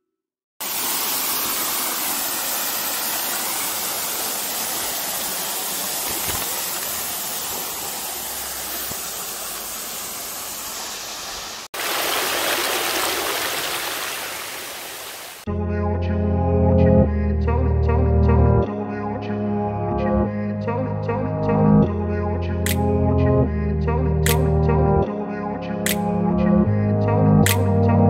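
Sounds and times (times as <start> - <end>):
water spilling over rocks: 0.6 - 15.4
waterfall roaring: 0.6 - 15.4.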